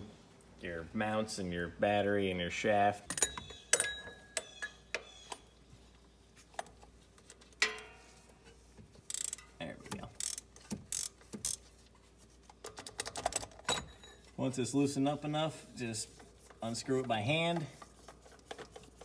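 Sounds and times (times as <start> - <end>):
ratchet clicking: 9.1 - 9.4, 10.2 - 11.6.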